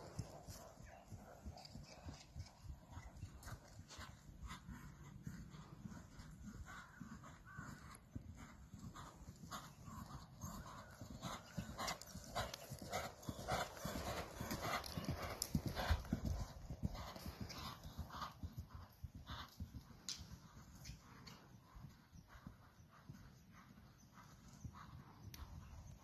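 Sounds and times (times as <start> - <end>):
horse hoofbeats on sand: 6.7 - 23.2.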